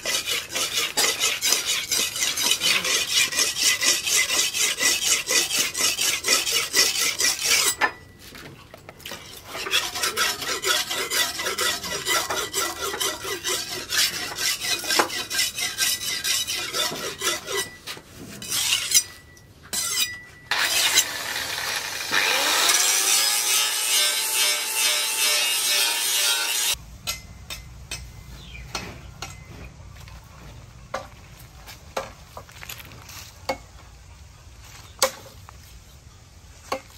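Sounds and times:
blade grinding on whetstone: 0.0s - 8.0s, 9.1s - 26.8s.

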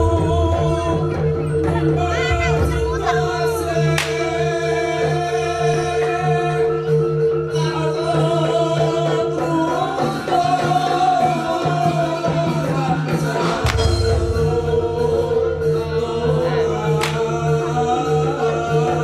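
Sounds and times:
gamelan ensemble held tones: 0.0s - 19.0s
mallet percussion: 0.0s - 19.0s
sharp crack: 4.0s - 4.3s, 13.7s - 14.1s, 17.0s - 17.3s.

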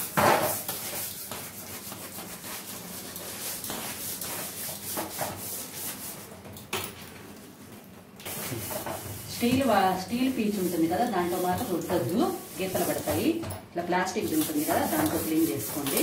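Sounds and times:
scrubbing plastic: 14.2s - 16.0s.

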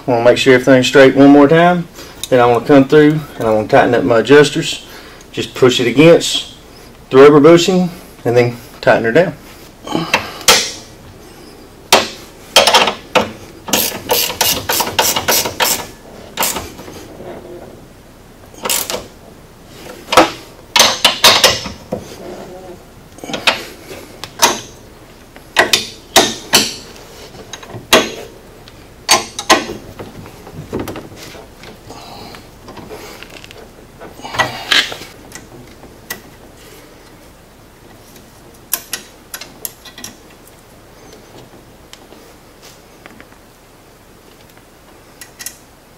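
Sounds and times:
wrenches clinking on metal bolts: 11.9s - 16.7s, 20.1s - 21.8s, 24.4s - 24.8s, 25.6s - 26.9s, 29.1s - 29.8s
ratchet clicking: 13.7s - 16.6s.

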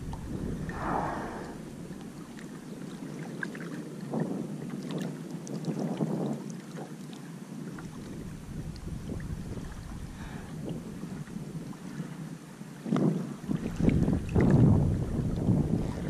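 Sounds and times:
wind buffeting microphone: 0.0s - 6.9s, 7.6s - 16.0s.

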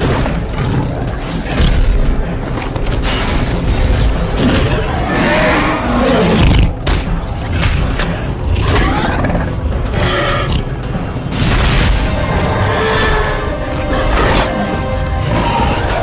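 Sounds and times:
orchestral music: 0.0s - 16.0s.

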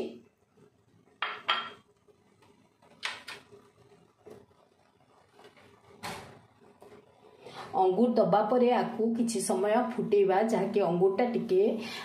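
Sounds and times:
thick gravy boiling and sputtering: 2.0s - 7.6s.

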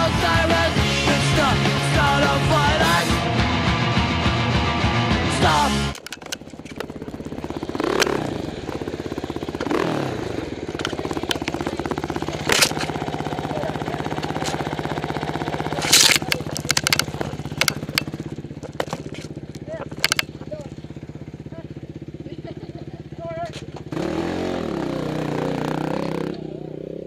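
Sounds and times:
dirt bike engine idling and revving: 0.0s - 27.0s
sharp knocks and clatters: 6.0s - 7.2s, 15.8s - 20.4s.

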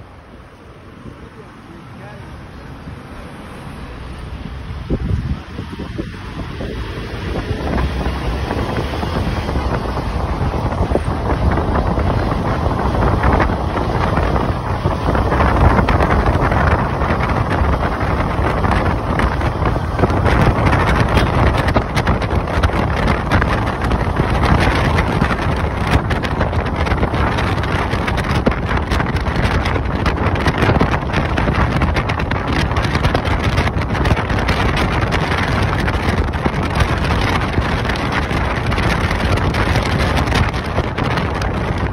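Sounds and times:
car road noise: 0.0s - 41.9s
wind on microphone: 3.7s - 41.9s.

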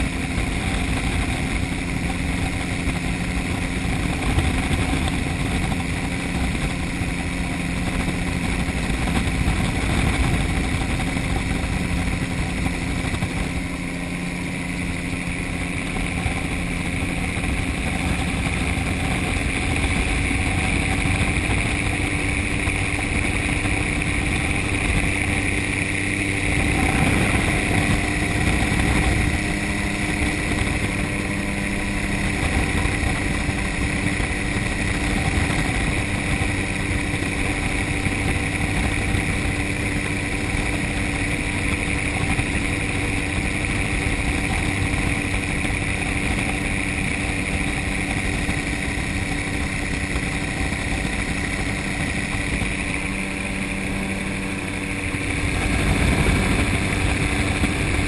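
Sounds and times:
gyrocopter engine and propeller: 0.0s - 58.0s
rush of noise: 0.0s - 58.0s.

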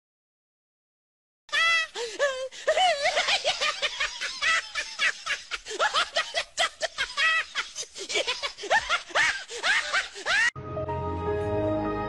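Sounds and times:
person laughing hard: 1.5s - 10.5s
music: 10.6s - 12.0s.

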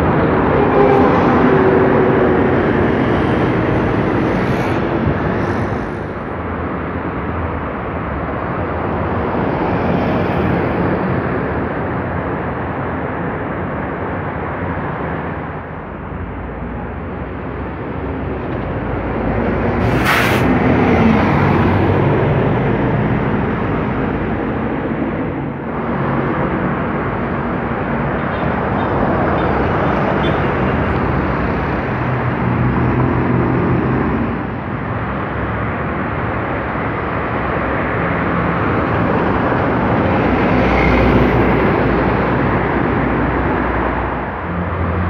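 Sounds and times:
buses driving past: 0.0s - 45.0s
traffic noise: 0.0s - 45.0s
sharp hiss: 19.8s - 20.5s.

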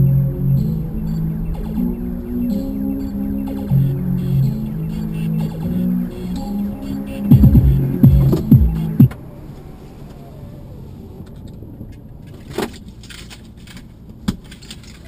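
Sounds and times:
music: 0.0s - 9.1s
car road noise rumble: 0.0s - 15.0s.

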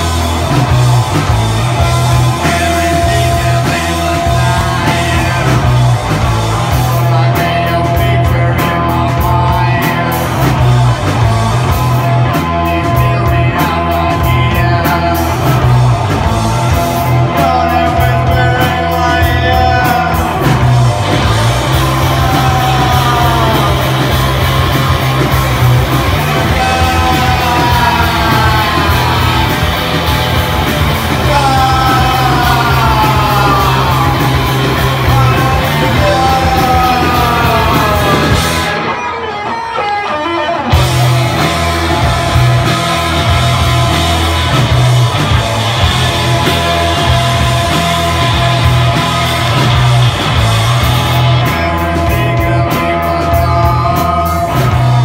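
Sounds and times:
drum kit: 0.0s - 55.0s
electric guitars: 0.0s - 55.0s
person singing: 1.8s - 11.0s, 16.9s - 39.2s, 51.2s - 55.0s.

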